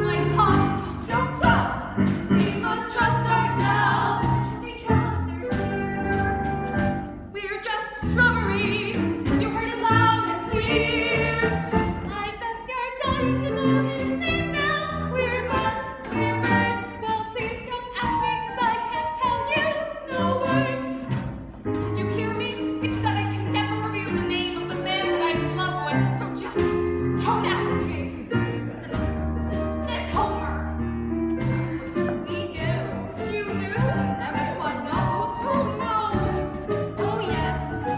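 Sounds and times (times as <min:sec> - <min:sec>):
women singing together: 0:00.0 - 0:06.0, 0:09.5 - 0:11.7
instrumental accompaniment: 0:00.0 - 0:37.9.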